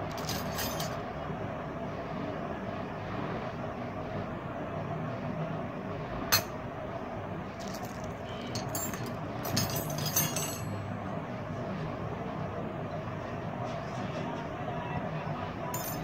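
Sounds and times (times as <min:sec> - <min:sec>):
metal bracelets clinking: 0:00.0 - 0:01.0, 0:07.6 - 0:10.8, 0:15.8 - 0:16.0.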